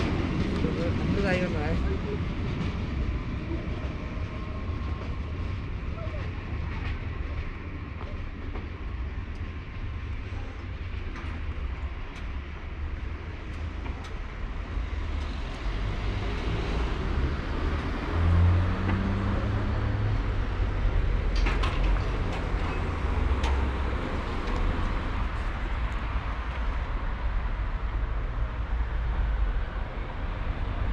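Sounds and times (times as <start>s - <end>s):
road traffic rumble: 0.0s - 30.9s
car passing by: 14.6s - 30.9s.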